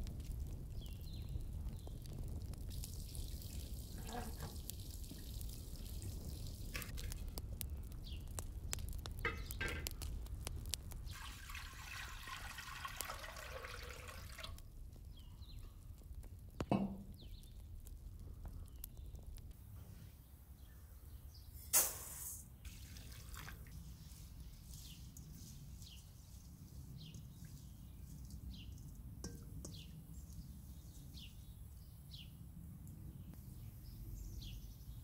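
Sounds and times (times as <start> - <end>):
wood fire crackling: 0.0 - 33.7
water trickling and dripping: 2.4 - 14.7, 22.6 - 29.9.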